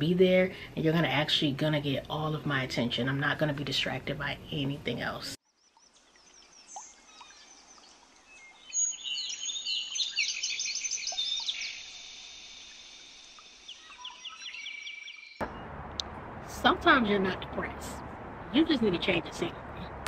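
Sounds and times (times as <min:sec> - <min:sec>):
faint outdoor hiss: 0:00.0 - 0:20.0
birds chirping and trilling: 0:05.5 - 0:15.9.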